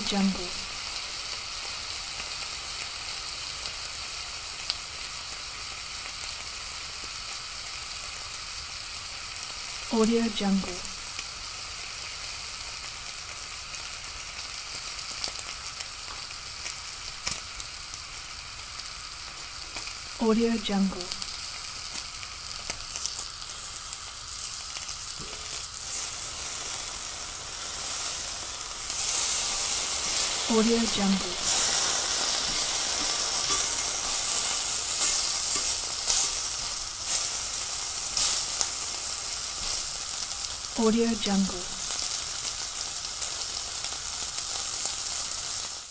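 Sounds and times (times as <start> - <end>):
food sizzling in a pan: 0.0 - 45.9
sharp pops of frying: 10.8 - 20.1, 21.0 - 40.7.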